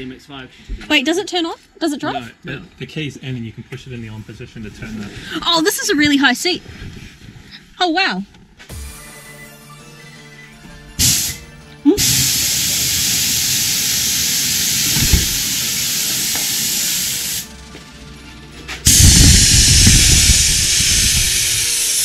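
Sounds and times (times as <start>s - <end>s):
compressed air hissing out: 11.0s - 11.4s, 12.0s - 17.5s, 18.8s - 22.0s
valve click: 12.0s - 17.4s.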